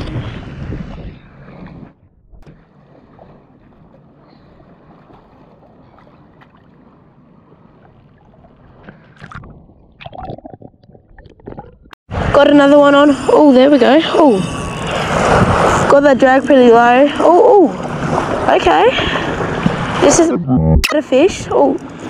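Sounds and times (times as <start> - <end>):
shallow water washing at shoreline: 0.0 - 9.4, 14.5 - 20.3
water splashing: 2.4 - 12.0, 14.6 - 21.0.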